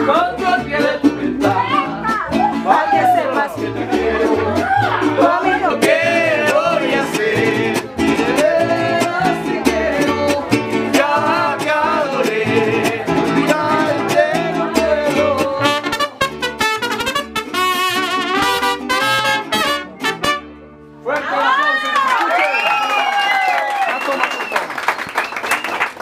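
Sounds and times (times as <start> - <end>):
men singing together: 0.0 - 1.8, 2.6 - 15.9
plucked bass line: 0.0 - 20.9
strummed guitars: 0.0 - 21.0
trumpet: 15.6 - 21.0.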